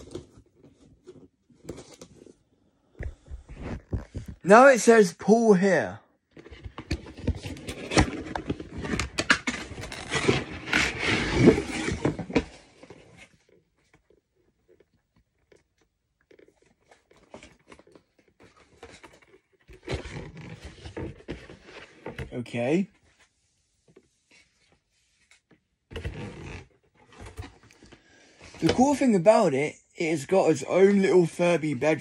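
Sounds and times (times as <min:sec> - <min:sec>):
rustling and handling: 0:00.0 - 0:04.5, 0:06.3 - 0:29.3
cardboard box tearing and rustling: 0:07.2 - 0:13.3.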